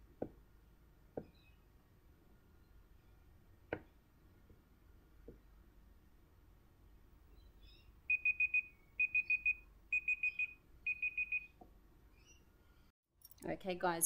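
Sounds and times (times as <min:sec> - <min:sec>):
phone timer alarm beeping: 0:08.1 - 0:11.6.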